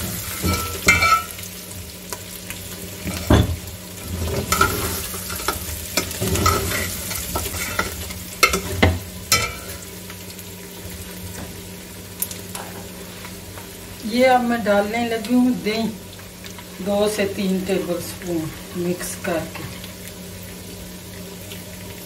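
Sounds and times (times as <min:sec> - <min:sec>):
hot oil sizzling: 0:00.0 - 0:22.0
metal ladle scraping pot: 0:04.0 - 0:09.8.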